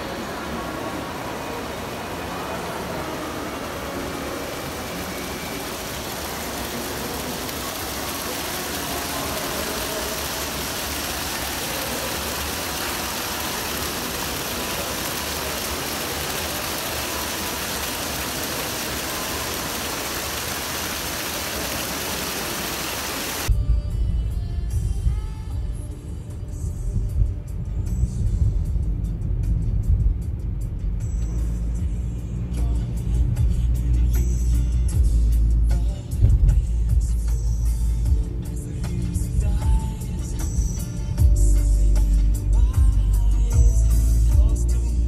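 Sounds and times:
fountain water splashing into pool: 0.0s - 23.5s.

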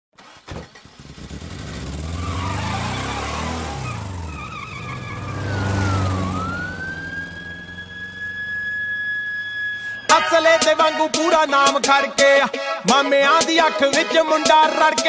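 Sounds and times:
car engine revving past: 0.9s - 10.0s
siren wailing: 2.2s - 11.1s.

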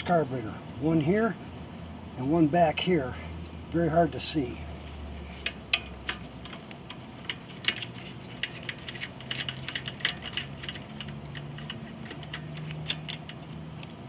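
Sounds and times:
ratchet clicking: 5.3s - 14.0s.

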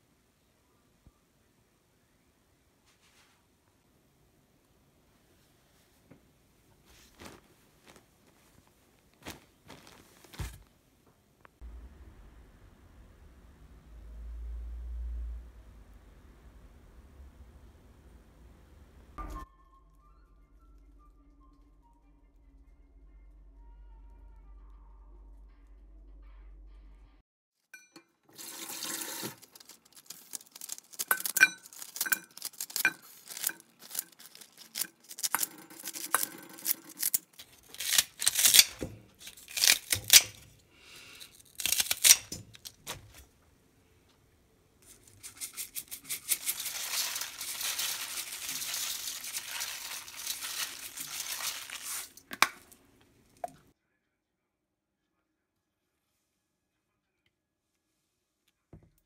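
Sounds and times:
tap water pouring: 28.2s - 31.3s
cabbage leaves snapping and rustling: 29.4s - 40.5s, 41.4s - 43.2s, 45.1s - 52.8s.

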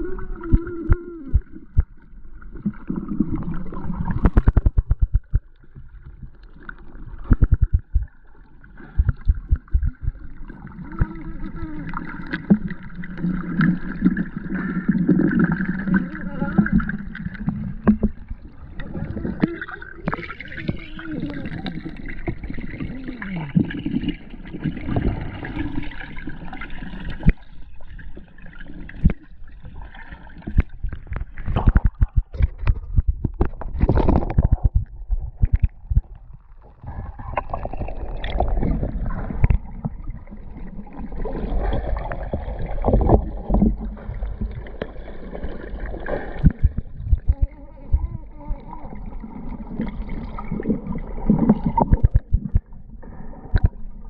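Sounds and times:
gurgling water underwater: 0.0s - 54.0s.

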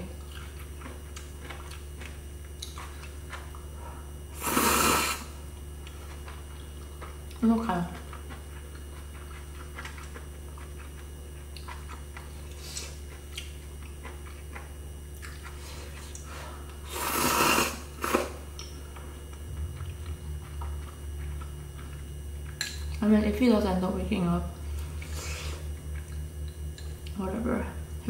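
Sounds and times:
steady low hum: 0.0s - 28.0s
chewing: 0.2s - 4.1s, 5.8s - 16.8s, 18.0s - 23.0s, 24.7s - 27.2s
noodles slurped: 4.4s - 5.3s, 16.9s - 18.4s.

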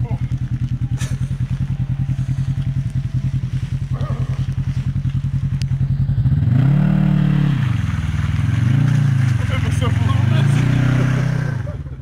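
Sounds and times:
utv engine running and revving: 0.0s - 12.0s.

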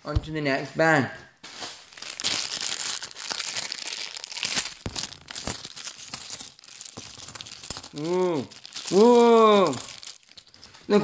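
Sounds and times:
bag crinkling and rustling: 1.5s - 11.0s
coins clinking: 4.0s - 11.0s.

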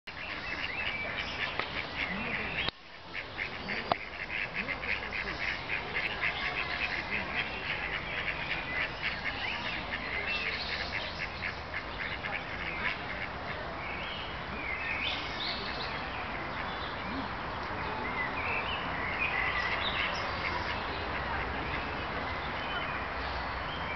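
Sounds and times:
ducks quacking: 0.1s - 14.0s, 19.0s - 22.0s.

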